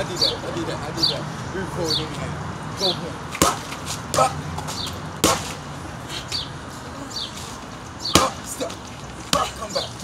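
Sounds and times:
boxing gloves smacking mitts: 3.3s - 5.6s, 8.1s - 8.5s.

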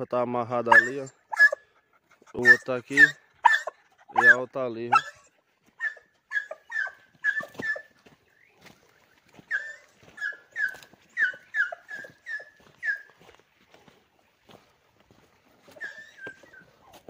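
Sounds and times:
dog whining in high yelps: 0.7s - 1.7s, 2.4s - 8.0s, 9.4s - 13.2s, 15.7s - 16.8s.

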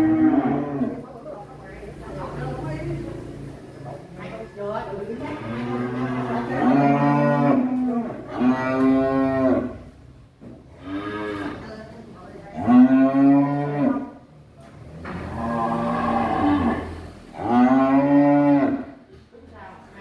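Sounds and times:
cattle mooing: 0.0s - 1.0s, 5.2s - 9.8s, 10.8s - 11.8s, 12.5s - 14.2s, 15.0s - 19.0s.

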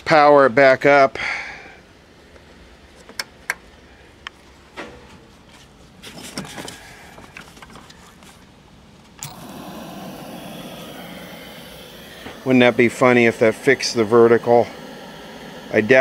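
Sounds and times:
small clicks and rustling: 5.5s - 8.5s.

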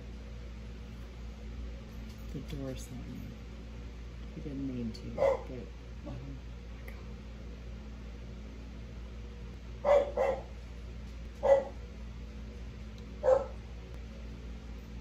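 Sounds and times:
dog barking: 5.2s - 5.5s, 9.8s - 10.5s, 11.4s - 11.8s, 13.2s - 13.6s.

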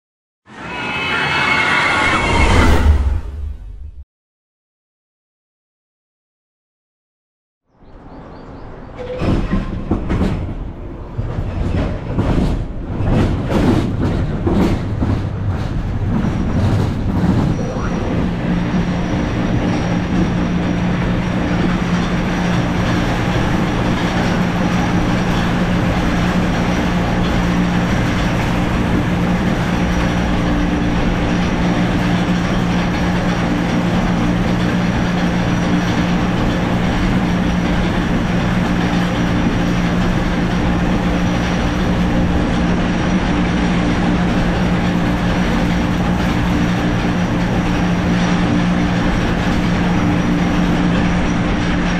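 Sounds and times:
wheels rumbling on steel track: 7.8s - 51.9s.

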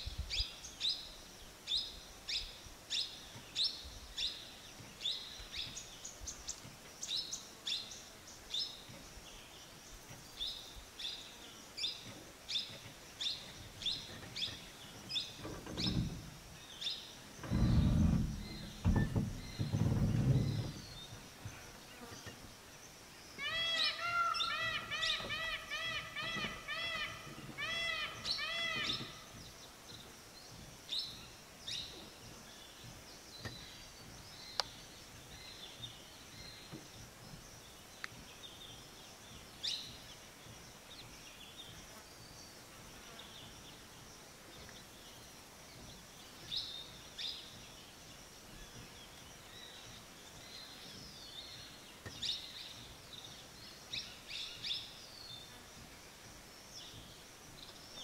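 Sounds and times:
low background hiss: 0.0s - 58.0s
birds chirping: 0.3s - 58.0s
bird repeated rising-falling calls: 23.4s - 29.4s.

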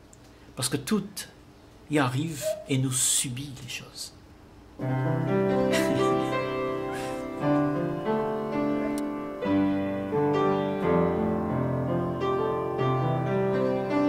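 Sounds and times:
slow piano music: 4.8s - 14.0s.

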